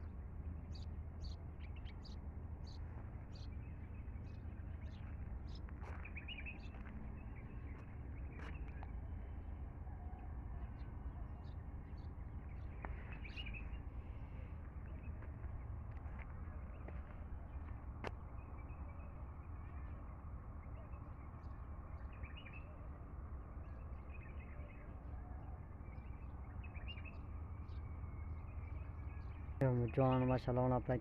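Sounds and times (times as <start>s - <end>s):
small birds chirping: 0.0s - 9.0s, 10.6s - 23.0s
steady low rumble: 0.0s - 31.0s.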